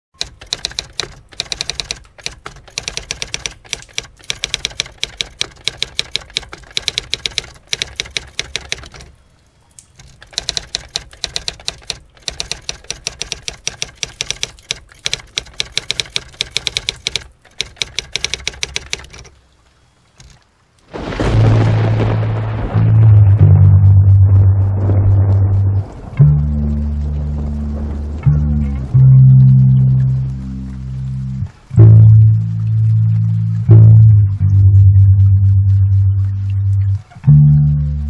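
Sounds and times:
typewriter keys clacking: 0.2s - 9.1s, 10.0s - 19.3s.

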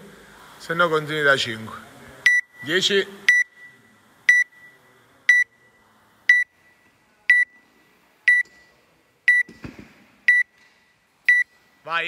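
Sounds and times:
timer beeps: 2.3s - 7.7s, 8.3s - 8.7s, 9.3s - 9.5s, 10.3s - 10.6s, 11.3s - 11.6s.

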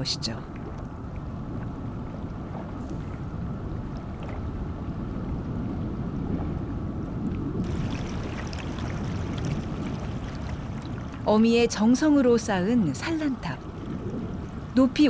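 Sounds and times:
muffled underwater river rumble: 0.4s - 15.0s
water running over stones: 7.6s - 11.7s.

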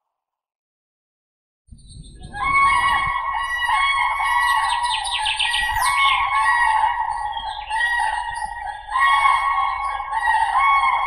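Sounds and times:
small birds chirping: 4.1s - 11.0s.

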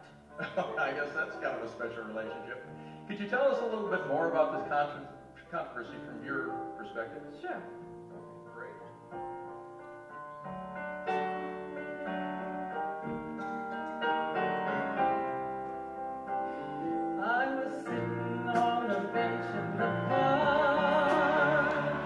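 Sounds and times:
electric keyboard piano sound: 0.0s - 22.0s
woman singing with vibrato: 17.5s - 22.0s.

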